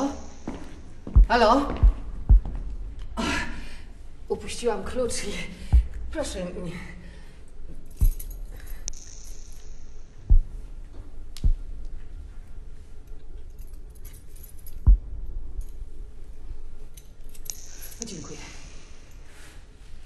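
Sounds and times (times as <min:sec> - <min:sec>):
low steady rumble: 0:00.0 - 0:19.2
keys jangling: 0:07.7 - 0:09.9, 0:13.0 - 0:14.9, 0:16.9 - 0:19.2.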